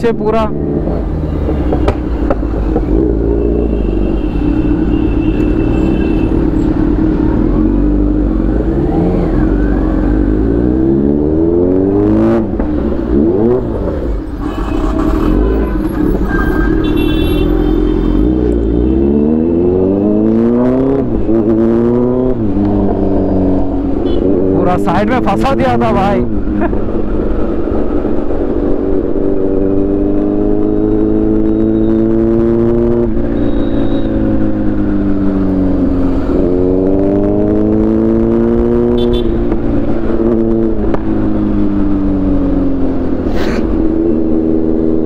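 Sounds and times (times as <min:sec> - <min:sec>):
vehicle horns: 0:03.3 - 0:06.7, 0:14.4 - 0:19.4, 0:24.0 - 0:24.5, 0:33.2 - 0:34.2, 0:38.8 - 0:39.5.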